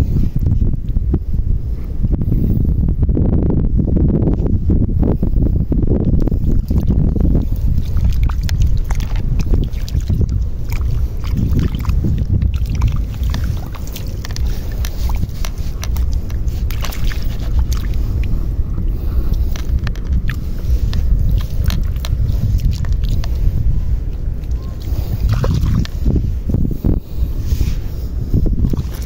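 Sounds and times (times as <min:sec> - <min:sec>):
wind rumbling on microphone: 0:00.0 - 0:29.0
clicks and pops from wet mud: 0:19.5 - 0:23.4.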